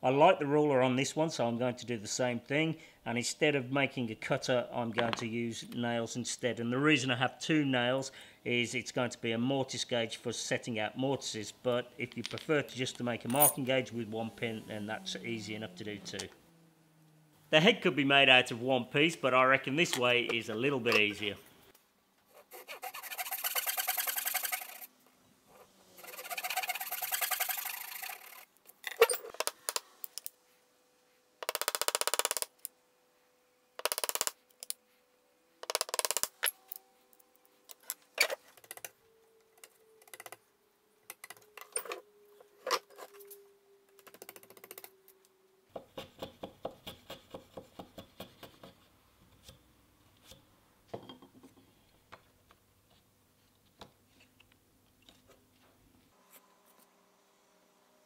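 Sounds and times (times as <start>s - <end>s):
handsaw cutting wood: 22.3s - 24.9s, 25.9s - 28.5s
chisel paring wood: 45.7s - 48.8s.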